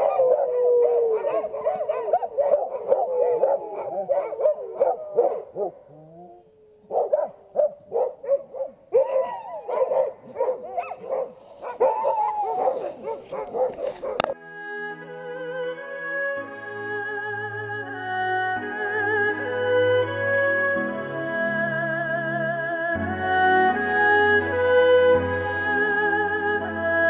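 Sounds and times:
dogs barking yipping and howling: 0.0 - 14.4.

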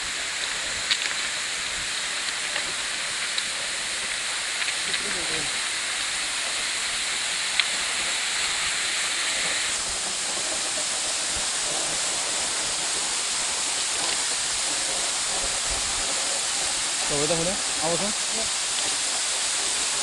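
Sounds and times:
waterfall splashing on stones: 0.0 - 20.0.

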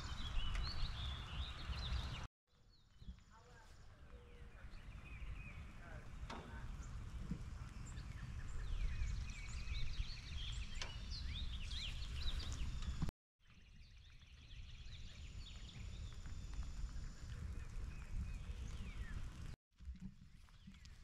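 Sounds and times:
songbirds chirping and singing: 0.0 - 2.3, 3.1 - 13.0.

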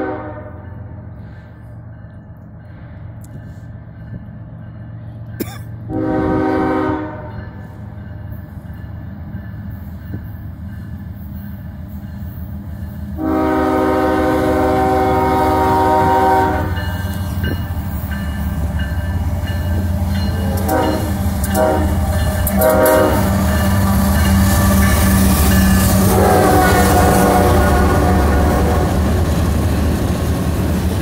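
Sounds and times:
train air horn: 0.0 - 1.3, 5.9 - 7.6, 13.2 - 17.1, 20.3 - 23.6, 24.5 - 29.3
train engine and wheels rumbling: 0.0 - 31.0.

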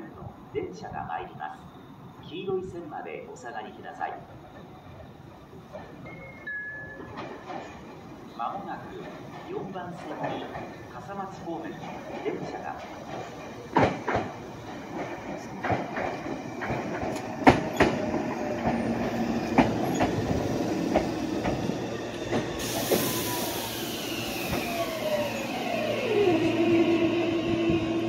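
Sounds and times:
train wheels clacking on rail joints: 7.1 - 8.0, 8.9 - 23.2
train motor whine: 21.0 - 28.0.

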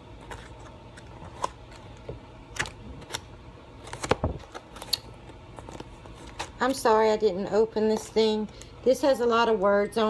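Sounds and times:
paper pages turning and rustling: 3.8 - 5.0, 5.6 - 6.7.

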